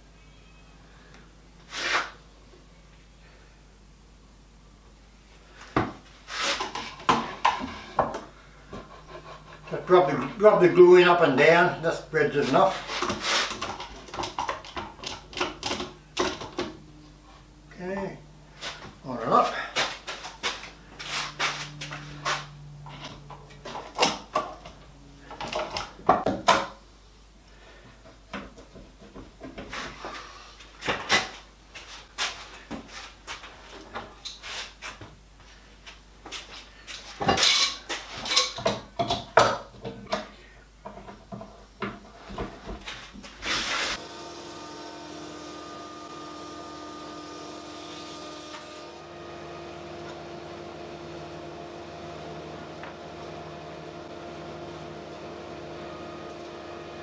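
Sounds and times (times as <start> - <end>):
machine hum with held tones: 16.0 - 19.2, 20.6 - 26.0, 44.0 - 57.0.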